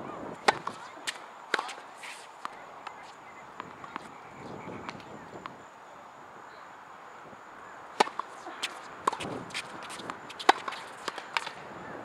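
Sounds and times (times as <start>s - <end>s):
tennis balls hitting rackets and court: 0.3s - 5.6s, 7.8s - 11.8s.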